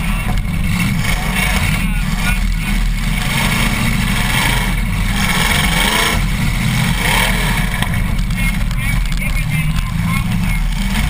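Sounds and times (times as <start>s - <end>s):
car engine droning: 0.0s - 11.0s.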